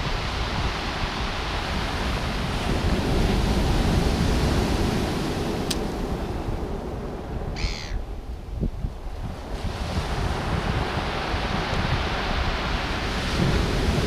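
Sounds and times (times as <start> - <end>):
wind buffeting microphone: 0.0 - 14.0
surf breaking on shingle beach: 9.4 - 14.0.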